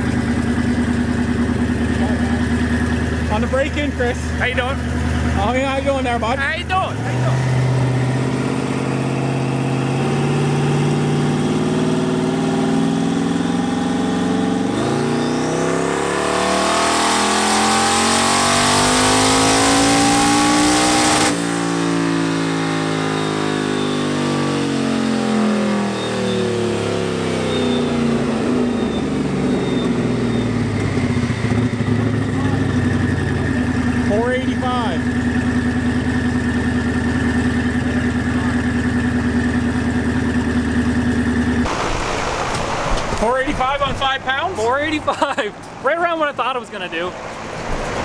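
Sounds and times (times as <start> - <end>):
car engine revving on dyno: 1.5 - 44.4
turbo whistle: 23.0 - 24.2, 25.8 - 31.7.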